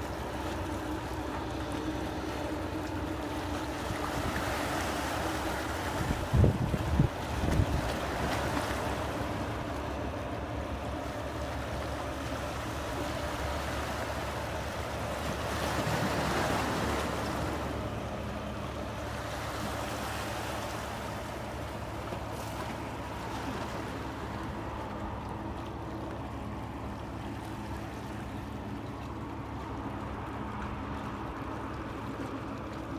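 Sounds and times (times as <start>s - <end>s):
ship engine drone: 0.0s - 32.9s
water wash: 0.0s - 32.9s
wind on microphone: 6.0s - 8.0s.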